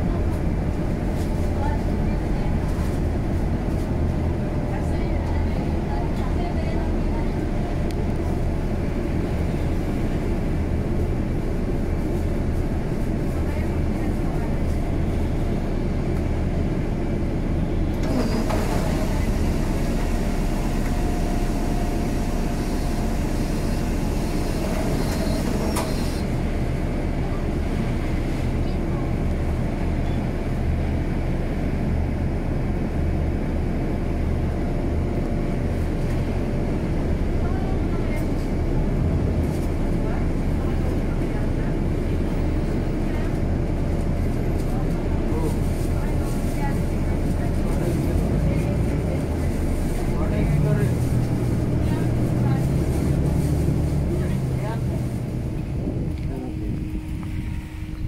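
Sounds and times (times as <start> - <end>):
bus engine idling: 0.0 - 58.0
vehicle driving on wet road: 35.3 - 57.0.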